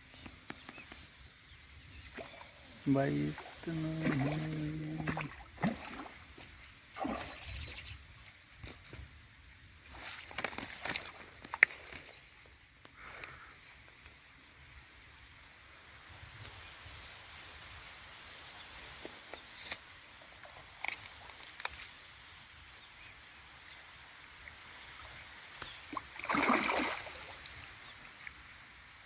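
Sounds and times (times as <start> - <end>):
fish splashing in water: 3.3 - 7.7, 25.6 - 27.8.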